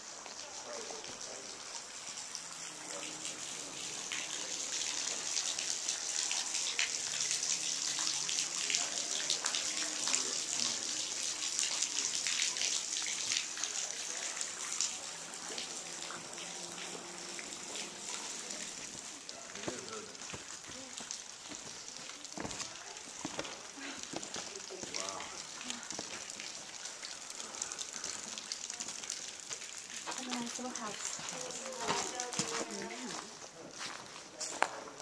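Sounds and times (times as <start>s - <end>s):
waterfall splashing into pool: 0.0s - 35.0s.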